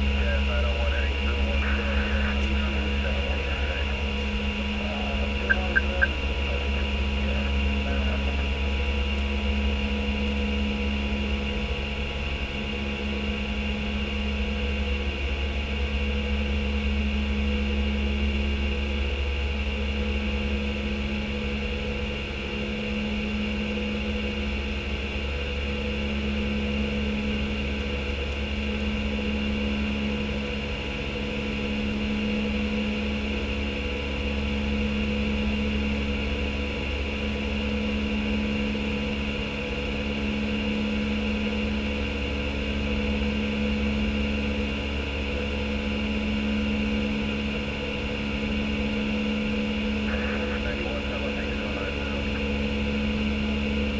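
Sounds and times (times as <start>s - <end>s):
steady tones: 0.0s - 8.6s
low hum: 0.0s - 53.9s.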